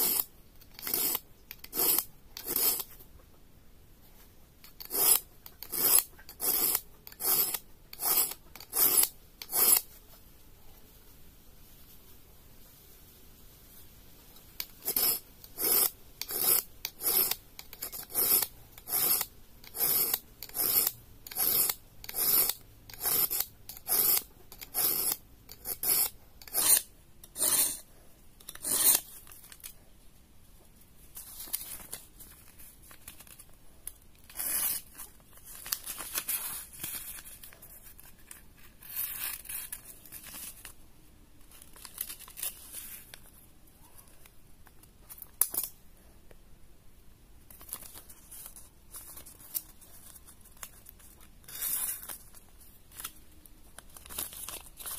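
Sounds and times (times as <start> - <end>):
knife scraping across sharpener: 0.0 - 2.9, 4.8 - 9.9, 14.7 - 27.9, 28.5 - 29.1, 34.3 - 34.9.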